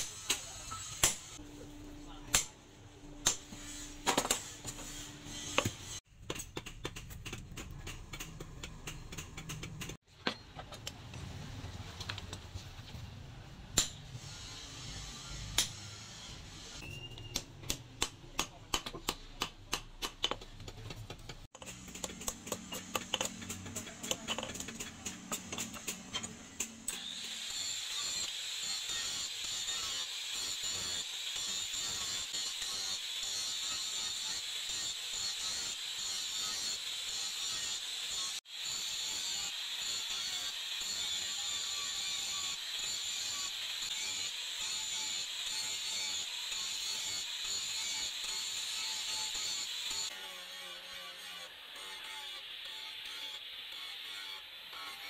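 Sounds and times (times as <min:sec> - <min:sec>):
hammer striking chisel: 0:00.0 - 0:01.4, 0:03.2 - 0:10.8, 0:16.8 - 0:27.0
hammer striking on anvil: 0:00.0 - 0:01.4, 0:13.8 - 0:14.1.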